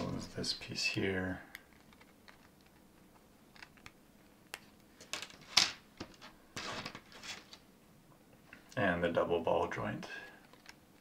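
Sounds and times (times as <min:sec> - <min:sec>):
plastic frame rustling: 0:04.5 - 0:07.6.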